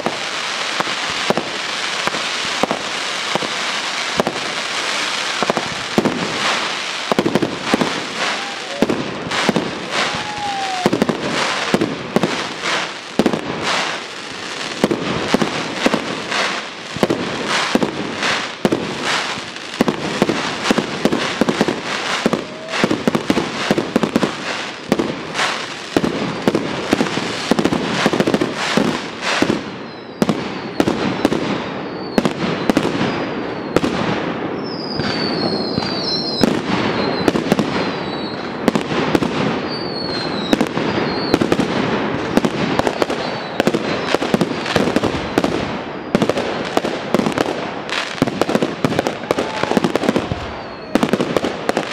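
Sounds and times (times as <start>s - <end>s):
firework bursts and bangs: 0.0s - 51.9s
firework crackling: 0.0s - 51.9s
high whistles: 29.8s - 30.8s, 31.6s - 33.8s, 34.6s - 38.5s, 39.7s - 41.4s, 42.9s - 44.2s, 50.4s - 51.1s
falling whistles: 29.8s - 33.8s, 34.6s - 38.5s, 39.7s - 41.4s, 43.0s - 44.2s, 50.4s - 51.1s.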